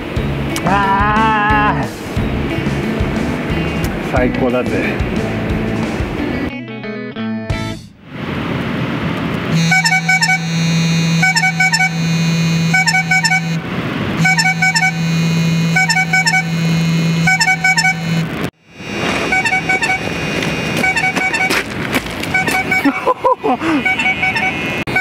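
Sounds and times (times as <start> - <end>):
phone ringtone: 9.6 - 13.6, 14.3 - 18.2, 19.3 - 21.6, 23.8 - 25.0
phone vibration buzzing on fabric: 9.6 - 13.6, 14.2 - 22.9, 23.8 - 25.0.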